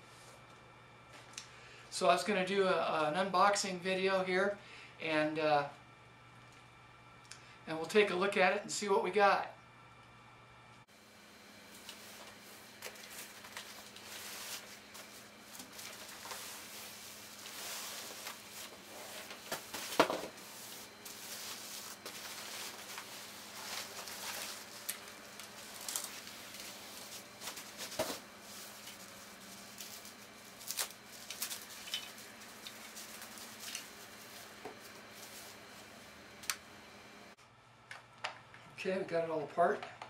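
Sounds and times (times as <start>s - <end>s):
packing material crinkling: 11.8s - 35.9s.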